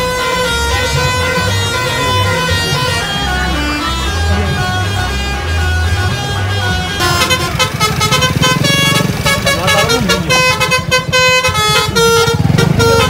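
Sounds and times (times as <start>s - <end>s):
musical bus air horns: 0.0s - 13.0s.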